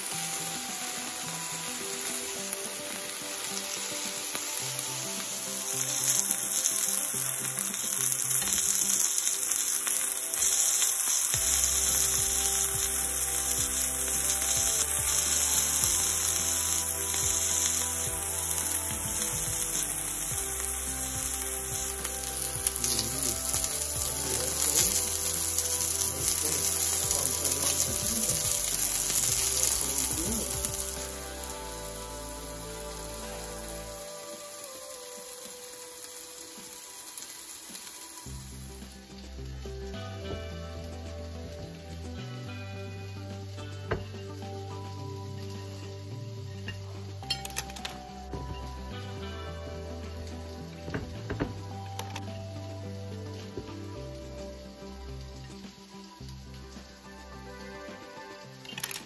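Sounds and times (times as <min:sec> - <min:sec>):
chicken sizzling in grill pan: 0:00.0 - 0:59.0.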